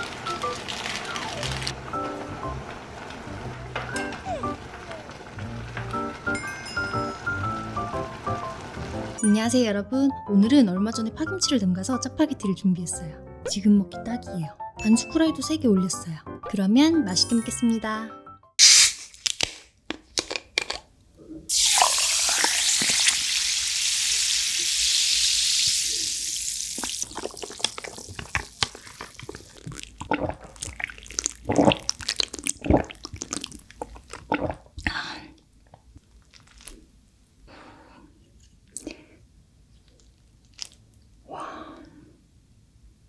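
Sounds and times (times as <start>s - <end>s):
drink pouring over ice: 0.0s - 3.3s, 21.5s - 29.9s.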